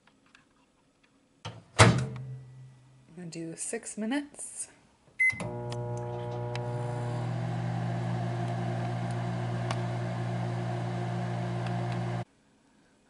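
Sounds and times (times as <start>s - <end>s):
microwave oven humming: 5.2s - 12.2s.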